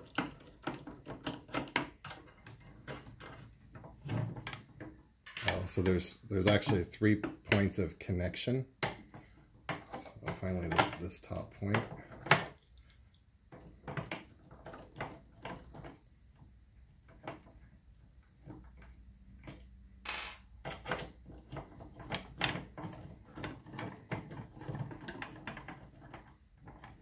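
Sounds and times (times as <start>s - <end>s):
plastic parts handled: 0.0s - 7.8s, 18.3s - 27.0s.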